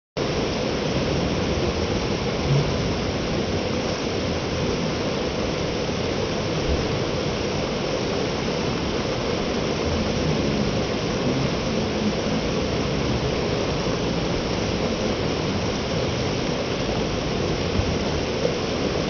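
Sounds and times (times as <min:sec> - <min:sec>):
waterfall rushing: 0:00.2 - 0:19.0.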